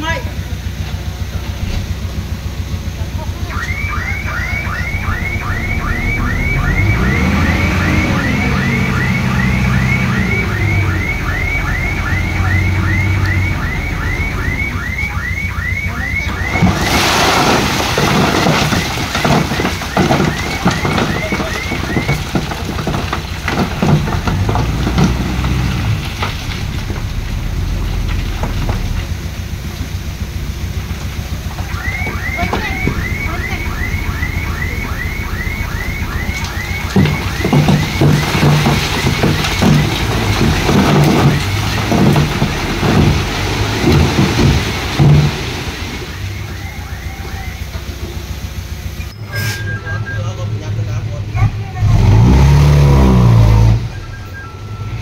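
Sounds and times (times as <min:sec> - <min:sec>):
diesel machinery engine revving: 0:00.0 - 0:55.0
electronic warning alarm chirping: 0:03.5 - 0:16.6, 0:31.7 - 0:38.7
stone clattering and tumbling: 0:16.5 - 0:29.9, 0:30.8 - 0:45.5.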